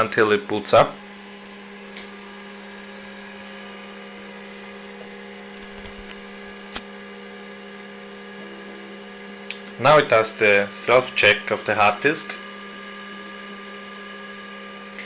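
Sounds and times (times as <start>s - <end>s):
hard disk humming: 1.7s - 6.8s
hard disk clicks: 5.6s - 6.8s.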